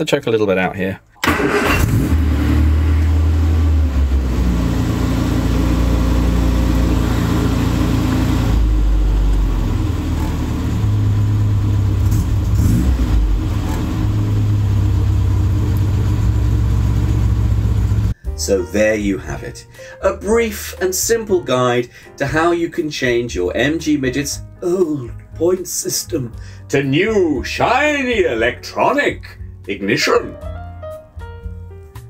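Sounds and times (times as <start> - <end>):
car engine starting and idling: 1.2 - 18.2.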